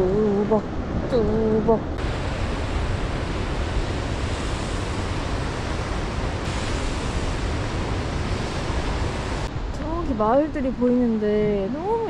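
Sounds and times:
wind rumbling on microphone: 0.0 - 12.0
waves breaking on beach: 2.0 - 9.7.

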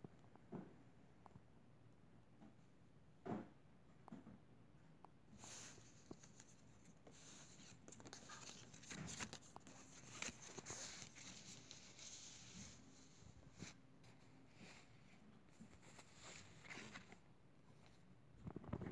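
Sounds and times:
paper cards rustling and scratching: 5.4 - 14.9, 15.5 - 17.2.

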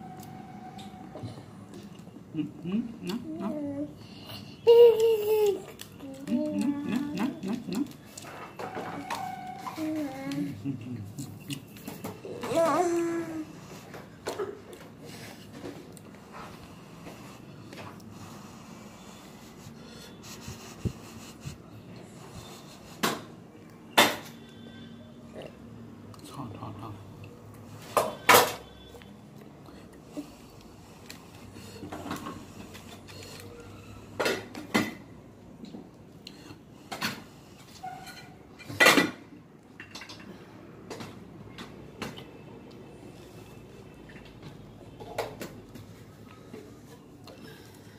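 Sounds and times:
person eating: 4.9 - 8.4, 10.3 - 12.5.

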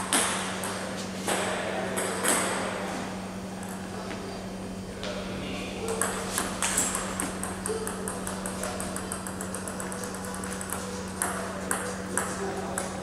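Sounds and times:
steady low hum: 0.0 - 13.0
table tennis balls clicking: 5.9 - 13.0.

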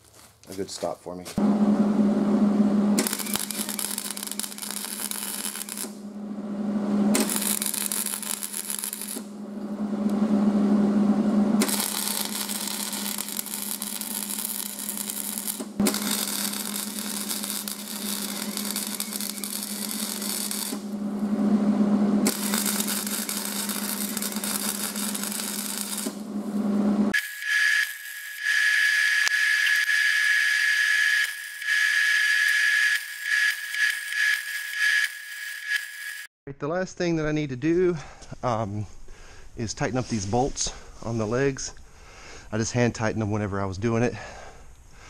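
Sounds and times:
steady low hum: 1.4 - 27.2
welding arc crackling and sizzling: 2.9 - 6.0, 7.1 - 9.3, 11.6 - 21.0, 22.2 - 26.3, 27.1 - 36.3.

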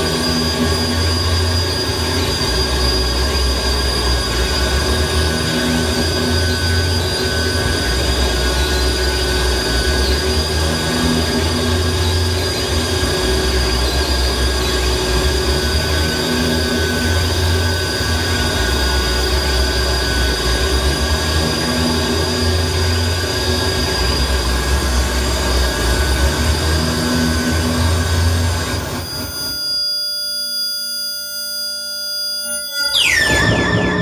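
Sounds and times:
heavy low drone: 0.0 - 29.4, 32.9 - 34.0
high whining tones: 0.0 - 34.0.

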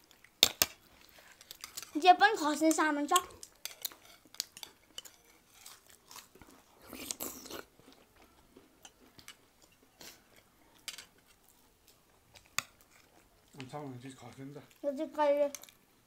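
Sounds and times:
people crunching crisp biscuits: 3.2 - 14.9.

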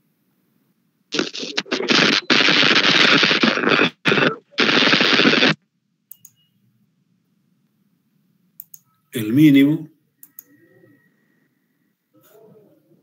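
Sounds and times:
choppy crackling rattling noise: 1.2 - 5.6
faint clicks: 6.1 - 6.4, 8.6 - 8.9, 10.2 - 10.5.

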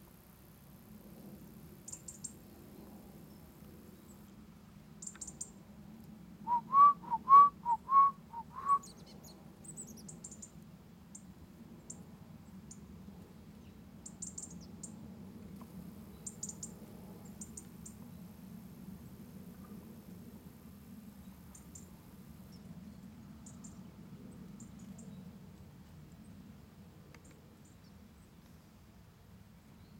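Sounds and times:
loud low whistled notes: 6.5 - 8.8.

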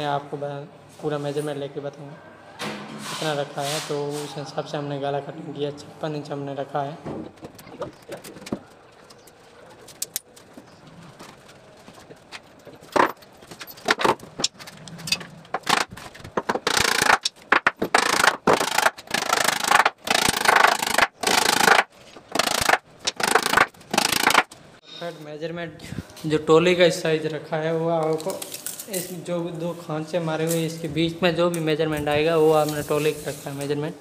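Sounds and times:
boards scraping: 10.4 - 24.5.

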